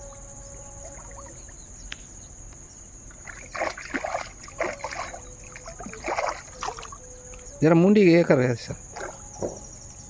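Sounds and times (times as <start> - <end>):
fish splashing in water: 3.1 - 7.5, 8.8 - 9.5.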